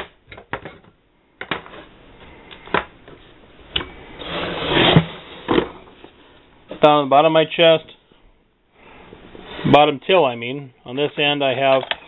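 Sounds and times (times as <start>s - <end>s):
rustling scrape: 4.2s - 6.5s.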